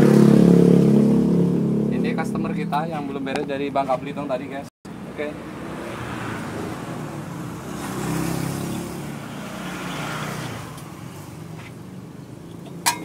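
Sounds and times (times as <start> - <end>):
vehicle passing: 4.9 - 12.8.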